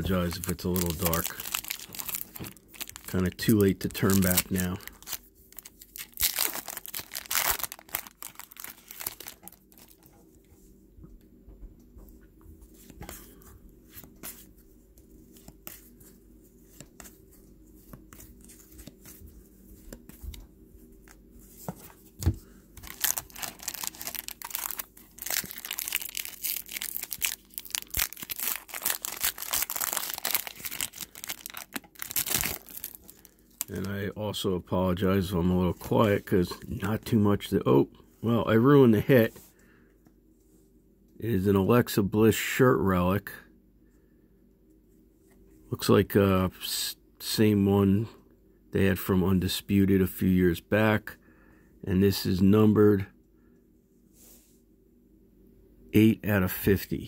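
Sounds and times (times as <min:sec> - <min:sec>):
foil wrappers crinkling and tearing: 0:00.0 - 0:10.1, 0:22.8 - 0:33.9.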